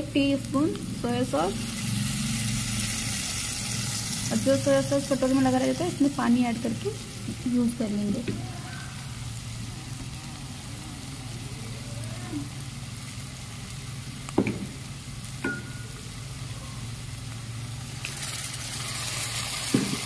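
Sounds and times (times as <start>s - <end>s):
vegetables sizzling in oil: 0.0s - 20.0s
utensil knocking against pan: 14.4s - 14.8s.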